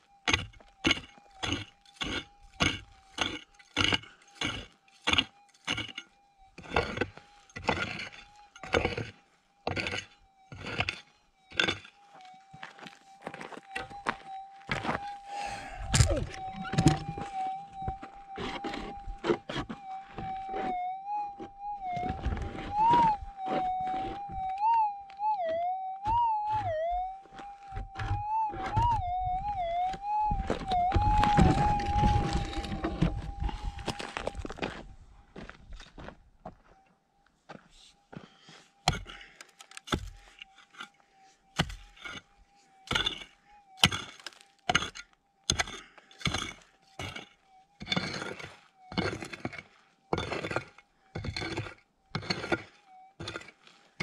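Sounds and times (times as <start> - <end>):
pick striking stony ground: 0.2 - 11.9, 15.8 - 20.7, 27.7 - 34.8, 38.8 - 54.0
gravelly soil scraping: 0.2 - 16.4, 17.1 - 20.8, 22.0 - 24.2, 30.5 - 36.1, 41.7 - 54.0.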